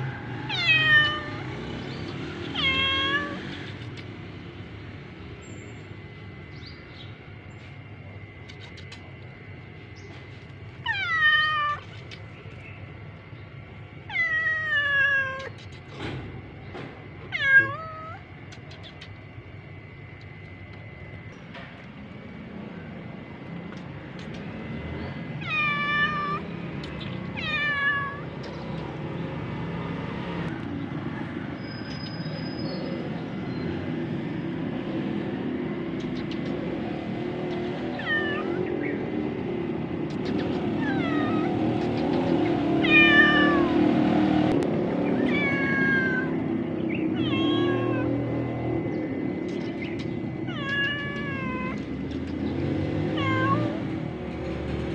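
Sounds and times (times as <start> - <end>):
cat meowing: 0.4 - 4.0, 10.8 - 12.2, 14.0 - 15.9, 17.3 - 19.2, 25.4 - 29.0, 37.9 - 39.0, 40.1 - 42.1, 42.8 - 44.0, 45.0 - 48.4, 49.5 - 52.4, 53.1 - 53.9.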